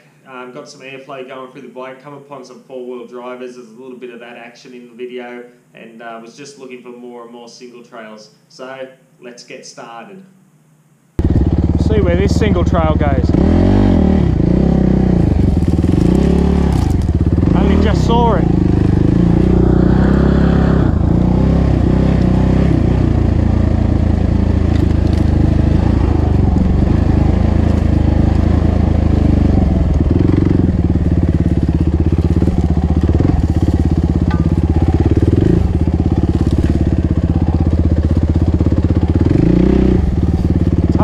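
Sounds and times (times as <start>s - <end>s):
motorcycle engine revving: 11.2s - 41.0s.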